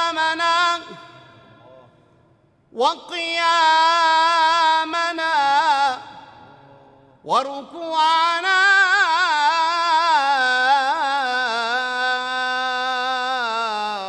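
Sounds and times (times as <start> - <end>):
solo voice chanting: 0.0 - 14.0.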